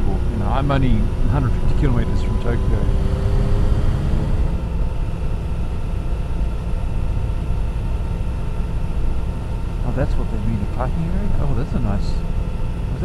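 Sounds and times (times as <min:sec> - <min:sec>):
motorcycle engine cruising: 0:00.0 - 0:06.1
road noise: 0:00.0 - 0:06.4.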